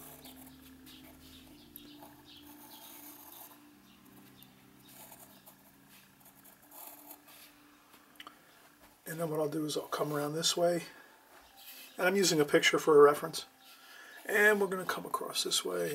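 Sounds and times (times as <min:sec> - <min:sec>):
pencil scratching on paper: 0:00.0 - 0:03.6, 0:04.8 - 0:07.4.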